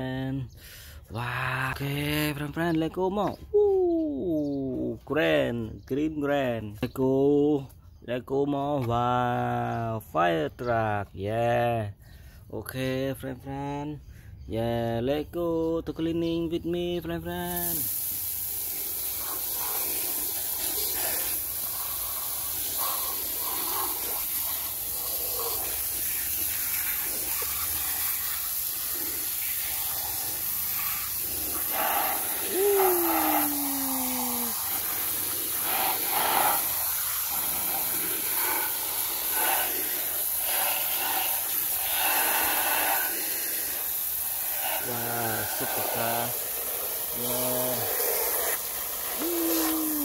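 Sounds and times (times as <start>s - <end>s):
hose spray hissing and splattering: 17.3s - 50.0s.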